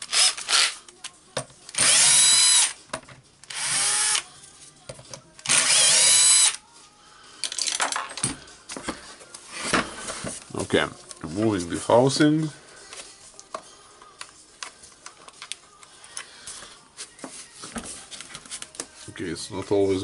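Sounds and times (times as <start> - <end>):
electric screwdriver running: 0.0 - 0.8, 1.7 - 2.8, 3.5 - 4.2, 5.4 - 6.6.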